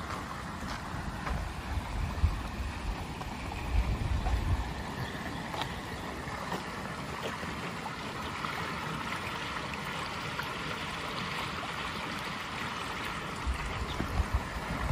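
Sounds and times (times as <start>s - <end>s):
water flowing in a channel: 0.0s - 14.9s.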